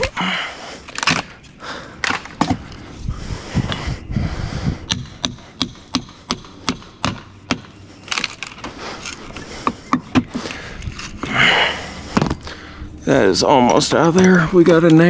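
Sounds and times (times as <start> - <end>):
wood splintering: 0.0 - 2.8, 4.9 - 12.4.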